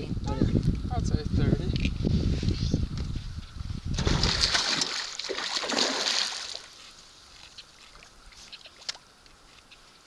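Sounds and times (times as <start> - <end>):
water splashing beside a canoe: 3.9 - 9.1.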